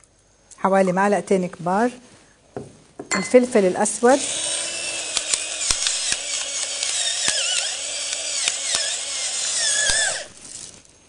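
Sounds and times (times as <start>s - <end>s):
pepper mill motor whine: 4.2s - 10.7s
sharp clicks: 5.1s - 9.0s.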